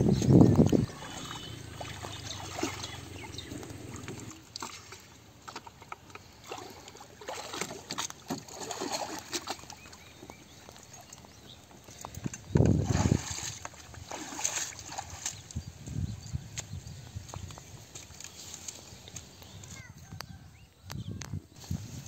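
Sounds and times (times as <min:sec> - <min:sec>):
water splashing around bucket: 0:00.2 - 0:15.7.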